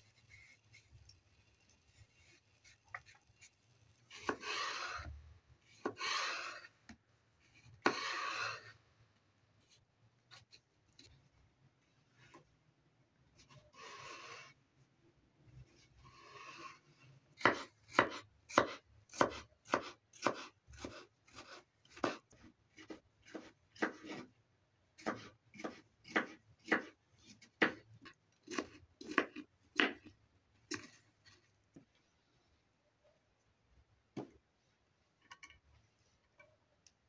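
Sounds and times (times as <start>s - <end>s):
knife chopping on plastic board: 17.4s - 24.3s, 25.0s - 27.8s, 28.4s - 30.1s.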